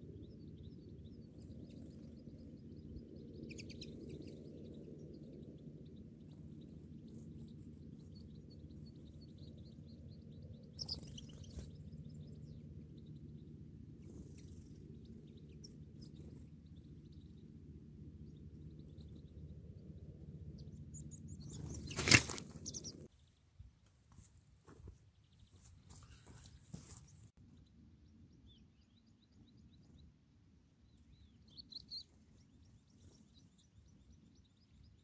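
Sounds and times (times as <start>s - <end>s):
steady low hum: 0.0s - 23.2s
finch chirps: 0.0s - 23.4s.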